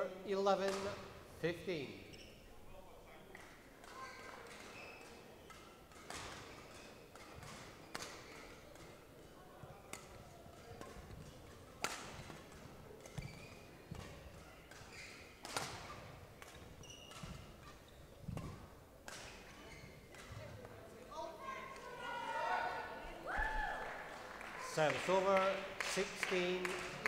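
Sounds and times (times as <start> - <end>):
rackets hitting shuttlecock: 0.6 - 1.1, 3.8 - 9.0, 9.6 - 20.8.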